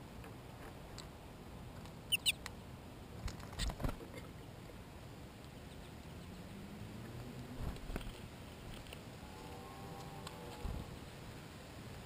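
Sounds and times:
short high bird chirps: 2.1s - 2.4s.

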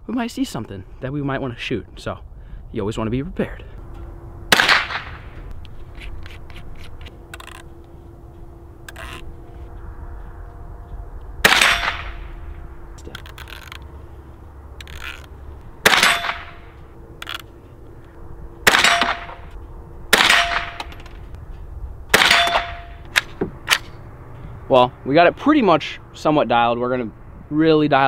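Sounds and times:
rifle shots cracking: 4.5s - 5.3s, 11.4s - 12.3s, 15.8s - 17.4s, 18.6s - 19.5s, 20.1s - 21.0s, 22.1s - 23.8s.

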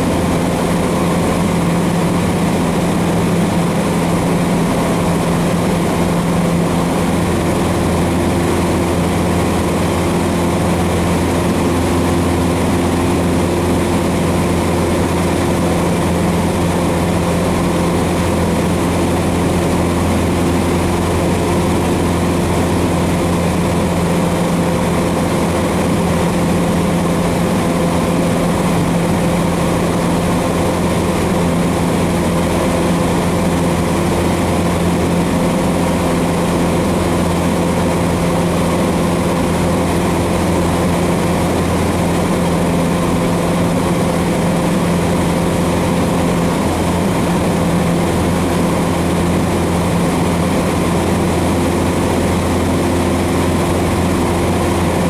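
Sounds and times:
light aircraft engine droning in cabin: 0.0s - 55.0s.

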